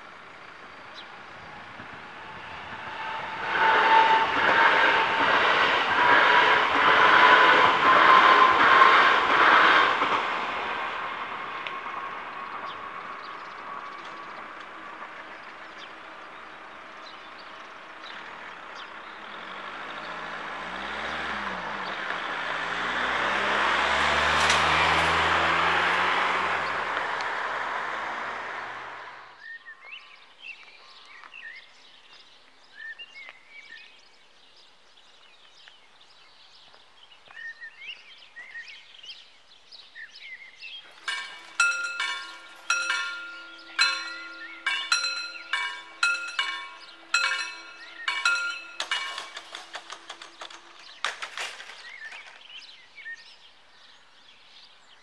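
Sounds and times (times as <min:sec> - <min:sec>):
electric train: 0:00.0 - 0:29.3, 0:40.9 - 0:52.5
car passing: 0:17.6 - 0:29.3
faint birdsong: 0:29.3 - 0:55.0
level crossing bells ringing: 0:41.0 - 0:51.8.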